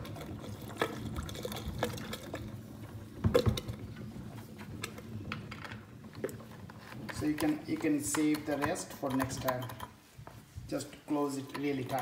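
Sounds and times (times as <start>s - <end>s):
liquid trickling into drain: 0.0s - 3.7s.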